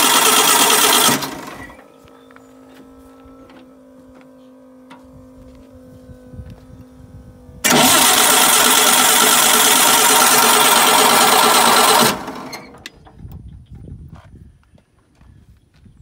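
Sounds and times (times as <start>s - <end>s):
engine cranking on electric starter: 0.0s - 1.9s, 7.6s - 13.2s.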